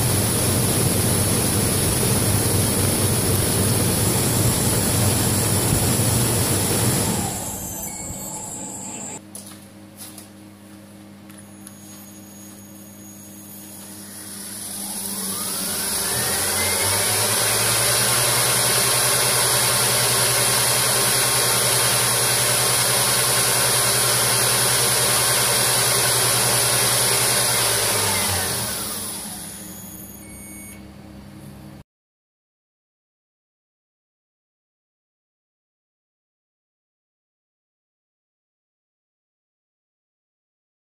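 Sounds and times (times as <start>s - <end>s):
wood lathe whine and rushing hum: 0.0s - 9.2s, 13.0s - 30.2s.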